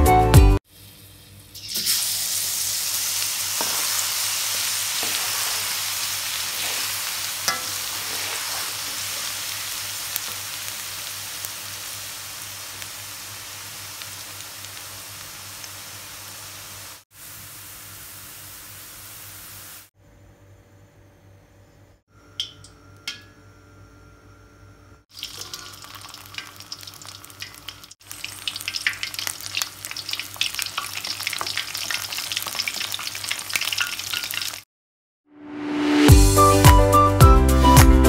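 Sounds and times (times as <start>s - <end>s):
garlic sizzling in hot oil: 0.7s - 19.9s, 25.1s - 34.6s.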